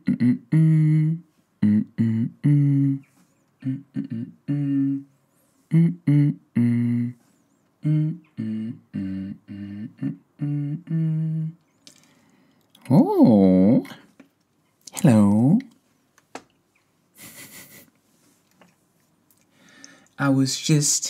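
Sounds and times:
man singing wordless tune: 0:00.0 - 0:07.2, 0:07.8 - 0:11.6.

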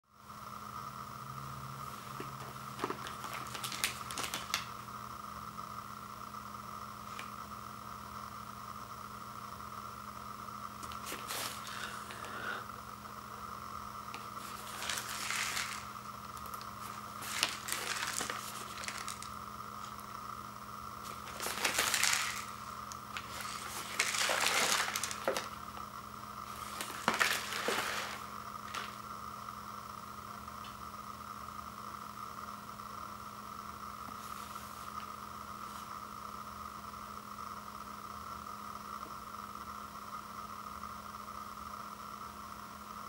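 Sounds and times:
faint steady hum: 0:00.0 - 0:43.0
plastic wrap crinkling: 0:02.4 - 0:04.7, 0:14.2 - 0:20.0, 0:21.0 - 0:25.8, 0:26.5 - 0:29.0.

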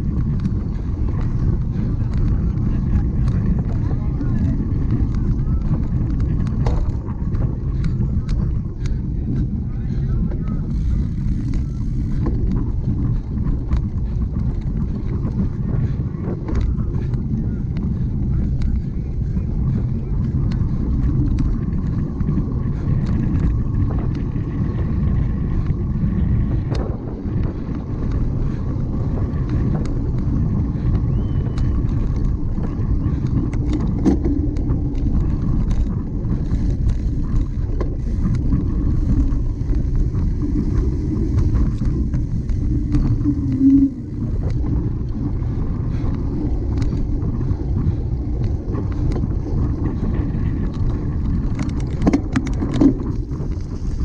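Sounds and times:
bike rattling and knocking: 0:00.0 - 0:54.0
wind rumbling on microphone: 0:00.0 - 0:54.0.

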